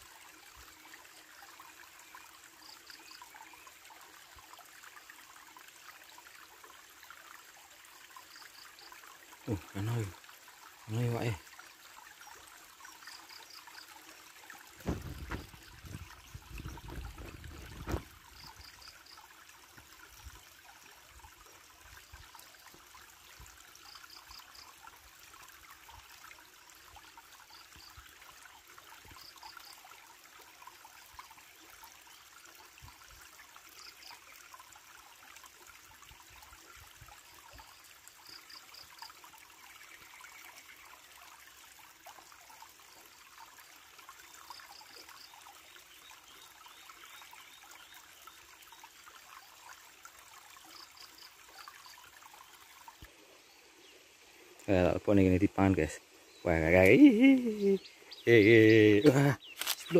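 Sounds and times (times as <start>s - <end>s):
stream trickling over rocks: 0.0s - 59.9s
low rumbling knocks: 14.8s - 18.1s.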